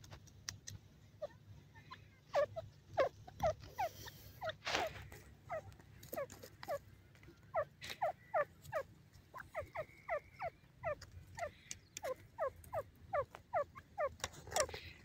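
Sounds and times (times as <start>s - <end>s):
francolin calling: 7.5s - 15.0s.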